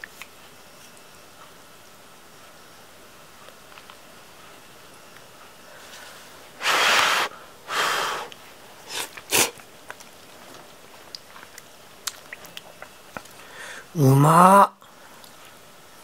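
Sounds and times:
person slurping noodles: 0:06.6 - 0:08.3, 0:08.9 - 0:09.6.

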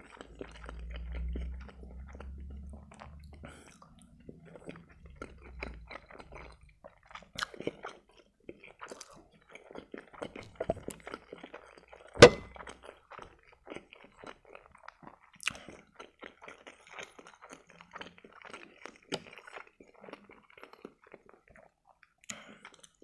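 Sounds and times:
chewing and wet mouth sounds: 0:00.0 - 0:23.0
fork clinking on plate: 0:12.2 - 0:12.6.

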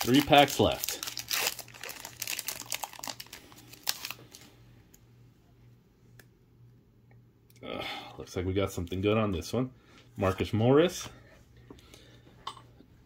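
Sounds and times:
foil wrapper crinkling: 0:00.0 - 0:04.5.

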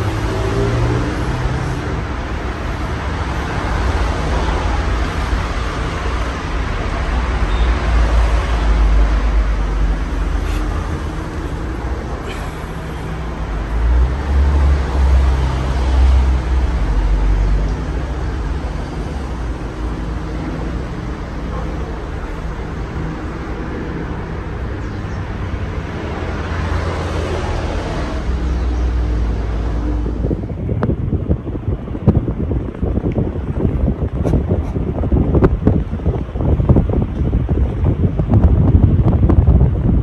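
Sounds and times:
wind buffeting microphone: 0:00.0 - 0:40.0.

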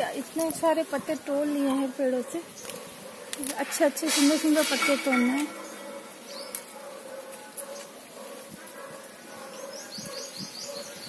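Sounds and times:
leaves snapping and rustling: 0:00.2 - 0:01.0, 0:02.6 - 0:08.0
bird chirping: 0:01.4 - 0:08.0, 0:08.9 - 0:11.0.

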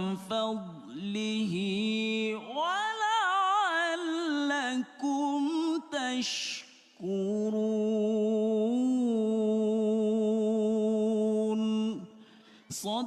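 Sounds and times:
man reciting melodically: 0:00.0 - 0:13.0
quick breath in: 0:12.2 - 0:12.7.

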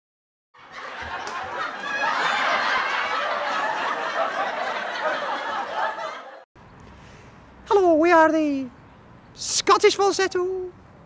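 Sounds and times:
crowd chattering and laughing: 0:00.6 - 0:06.4.

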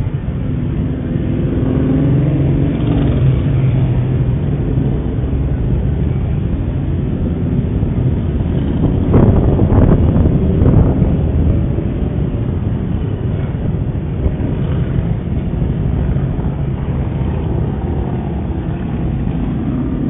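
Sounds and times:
motorcycle engines rumbling: 0:00.0 - 0:20.0.

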